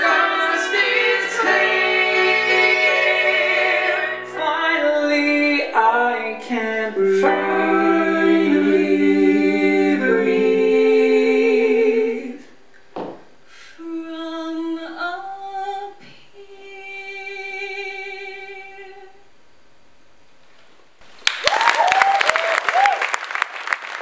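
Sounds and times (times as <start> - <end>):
vocal ensemble singing harmony: 0.0 - 12.7.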